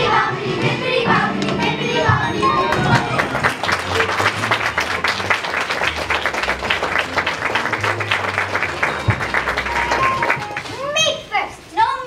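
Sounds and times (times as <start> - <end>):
audience applauding: 2.6 - 10.8.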